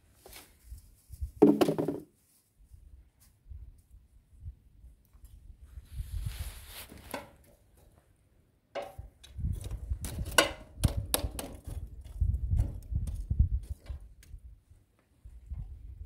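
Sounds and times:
sharp knocks and thuds: 1.4 - 2.1.

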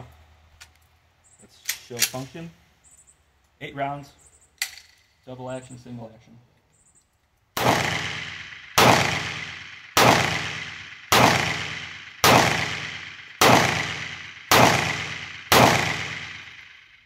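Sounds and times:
pistol shots: 7.6 - 17.0.

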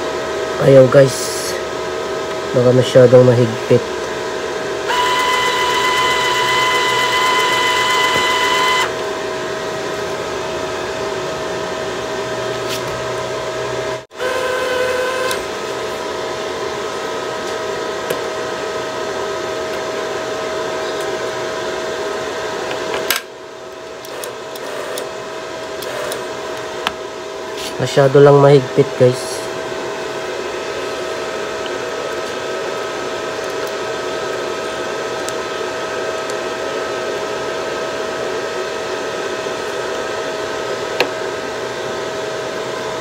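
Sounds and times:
welder machine hum: 0.0 - 43.0
wire-feed motor whining: 4.8 - 9.4, 14.1 - 15.8, 24.0 - 25.1, 25.8 - 26.7.

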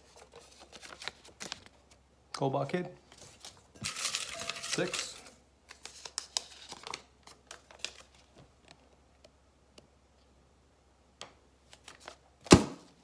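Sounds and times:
paper crinkling: 0.0 - 2.0, 3.1 - 8.4.

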